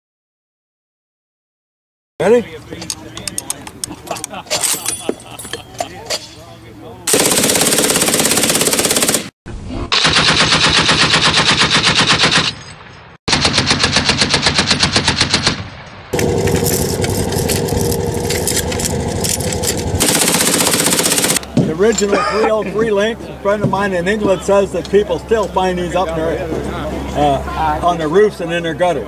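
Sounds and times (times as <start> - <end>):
machine gun firing bursts: 7.1 - 9.3, 10.0 - 12.5, 13.3 - 21.4.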